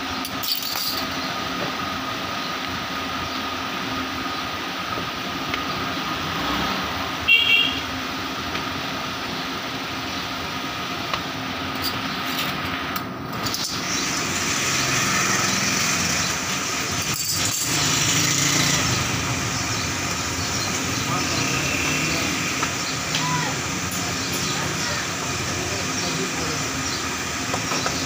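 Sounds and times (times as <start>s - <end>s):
small motor running: 13.5s - 28.0s.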